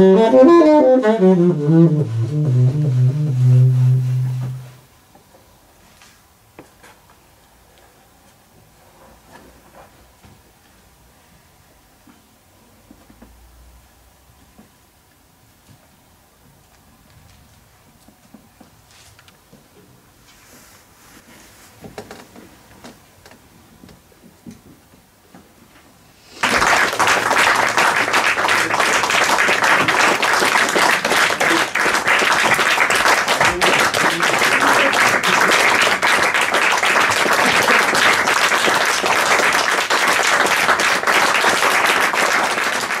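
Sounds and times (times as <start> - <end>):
audience clapping: 26.3 - 43.0.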